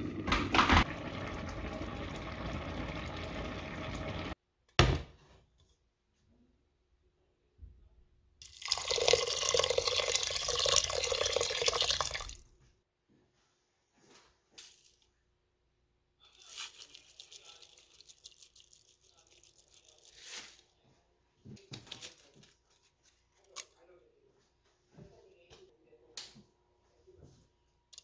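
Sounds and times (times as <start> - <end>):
water pouring into metal pot: 0.0 - 4.4, 8.4 - 12.4
seeds sprinkled crackly rustle: 16.2 - 20.7.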